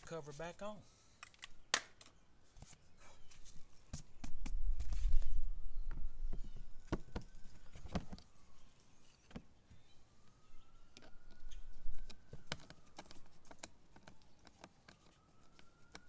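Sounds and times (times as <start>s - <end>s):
faint high whine: 4.7s - 13.4s.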